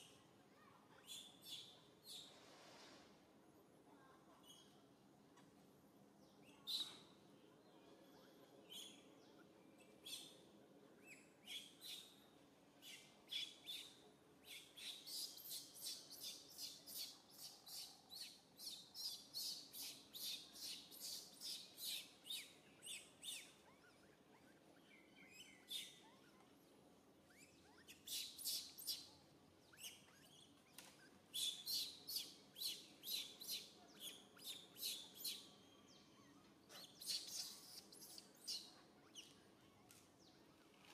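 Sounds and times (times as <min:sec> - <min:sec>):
bird chirping: 0:06.4 - 0:07.2, 0:12.8 - 0:26.6, 0:27.2 - 0:40.7.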